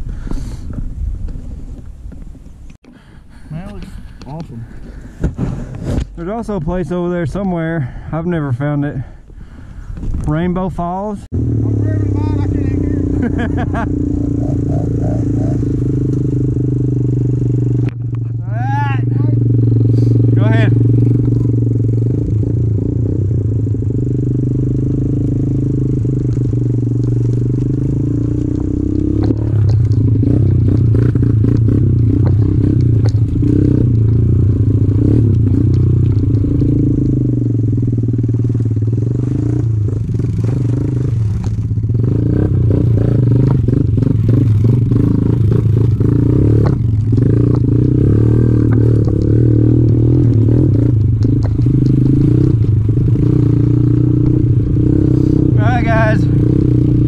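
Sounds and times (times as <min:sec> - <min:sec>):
motorbike engine revving: 0:11.2 - 0:57.0
bike rattling over rough ground: 0:20.4 - 0:22.1, 0:24.6 - 0:57.0.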